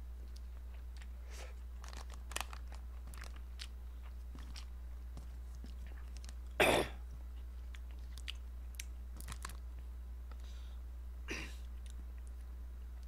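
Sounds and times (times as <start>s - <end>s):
steady low hum: 0.0s - 13.0s
chewing noodles: 7.4s - 9.5s.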